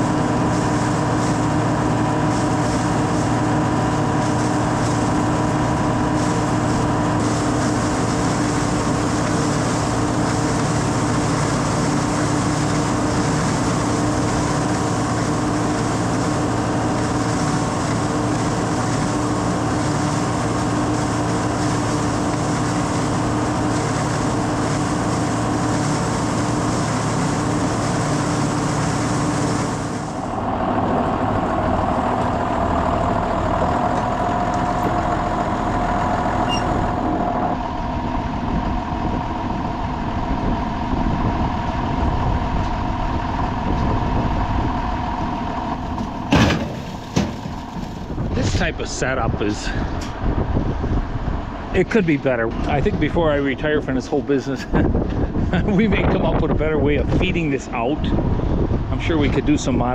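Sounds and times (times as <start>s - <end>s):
hammer mill grinding corn: 0.0s - 38.1s
tractor engine hum: 0.0s - 59.9s.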